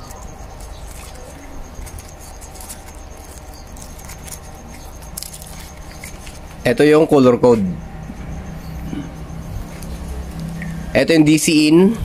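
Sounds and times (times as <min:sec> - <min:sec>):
rustling of wires being handled: 0:00.0 - 0:07.6
steady low hum: 0:00.0 - 0:12.0.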